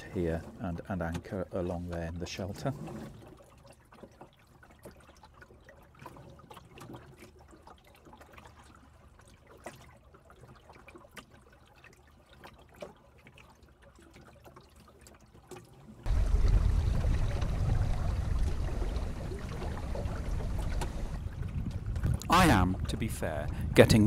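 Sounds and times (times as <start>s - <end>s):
small clicks and drips: 0.0s - 23.6s
water lapping against boat hull: 0.0s - 24.0s.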